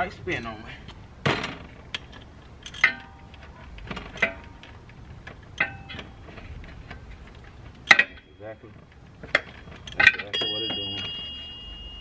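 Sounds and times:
metal tool clinking on bolt: 2.0s - 3.5s, 5.6s - 6.2s, 9.2s - 12.0s.

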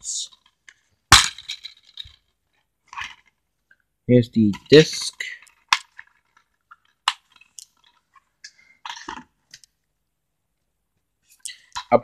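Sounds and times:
plastic cases clicking and rattling: 0.3s - 3.8s, 4.6s - 9.7s.

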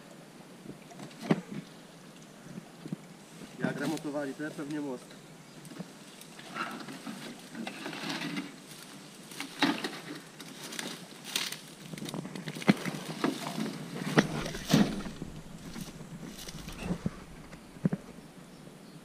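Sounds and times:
metal sign dragged through grass: 6.4s - 18.2s.

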